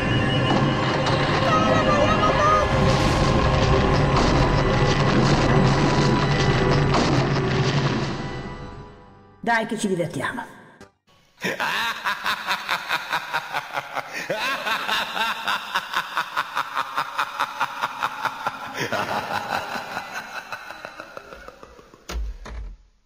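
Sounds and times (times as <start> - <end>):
person laughing: 11.4 - 22.1.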